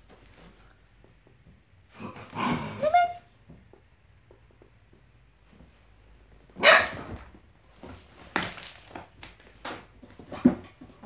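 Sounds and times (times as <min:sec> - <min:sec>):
puppies barking: 0:06.6 - 0:07.0.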